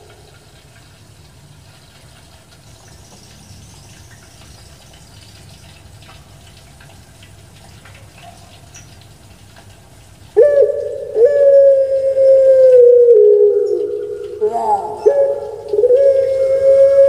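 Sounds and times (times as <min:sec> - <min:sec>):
soft ticks: 0:00.0 - 0:11.0, 0:13.6 - 0:14.4.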